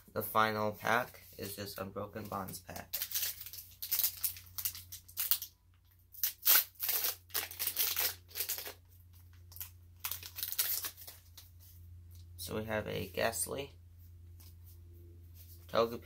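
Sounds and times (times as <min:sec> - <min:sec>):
foil wrapper tearing and crinkling: 0:02.8 - 0:05.5, 0:06.1 - 0:11.4.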